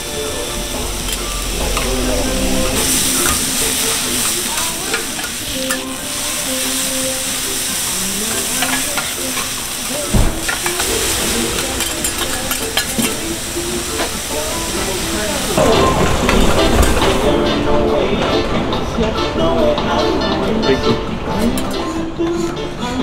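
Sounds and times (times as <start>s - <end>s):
meat and onions sizzling on griddle: 0.0s - 17.4s
metal spatulas scraping griddle: 0.6s - 6.0s
dull thump: 10.1s - 10.4s.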